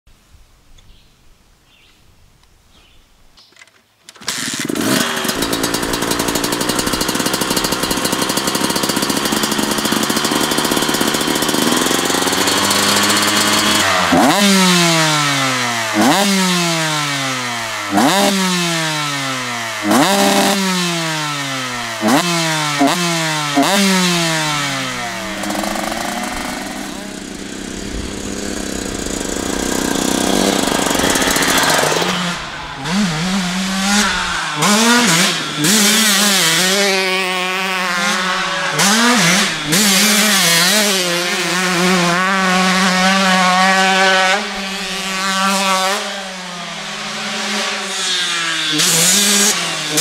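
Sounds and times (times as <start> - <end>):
motorcycle engine idling and revving: 4.3 - 50.0.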